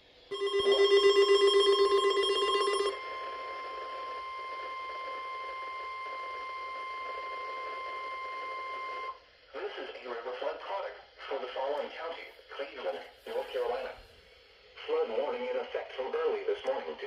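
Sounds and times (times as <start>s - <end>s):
rapid alarm beeps: 0.3s - 9.1s
steady warning alarm tone: 0.3s - 9.2s.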